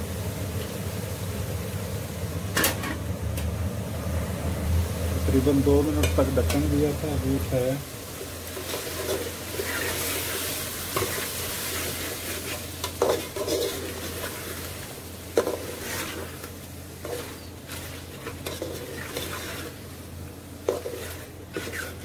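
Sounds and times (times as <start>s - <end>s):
food sizzling in a pot: 3.9s - 22.0s
metal spoon scraping a pot: 12.8s - 14.3s, 17.0s - 19.8s, 20.7s - 22.0s.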